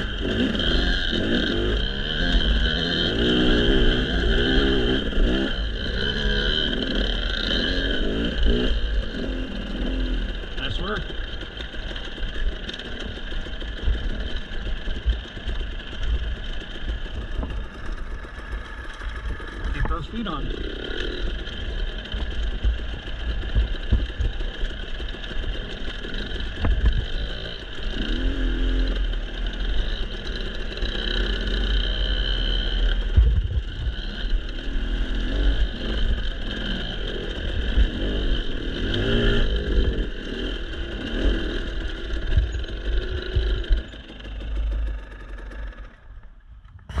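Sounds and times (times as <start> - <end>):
dirt bike engine revving: 0.0 - 47.0
low rumble: 32.2 - 36.6.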